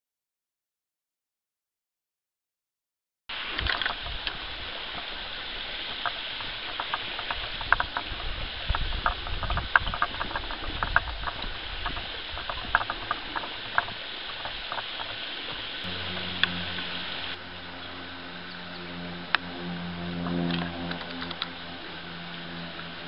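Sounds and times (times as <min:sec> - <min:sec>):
steady hiss: 0:03.3 - 0:19.4.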